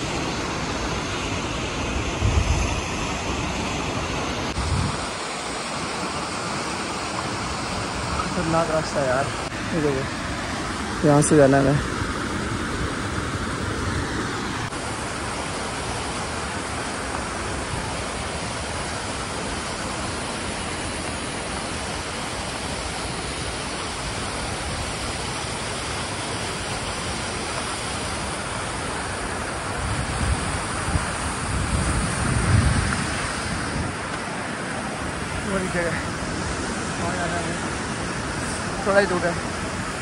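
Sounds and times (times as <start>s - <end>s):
stream rushing over rocks: 0.0s - 40.0s
wind rumble on microphone: 1.9s - 5.3s, 29.4s - 38.8s.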